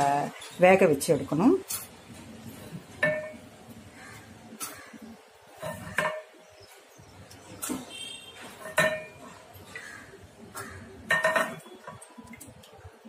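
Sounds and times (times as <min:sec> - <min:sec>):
metal utensils clinking: 0:07.6 - 0:09.9, 0:10.5 - 0:12.8.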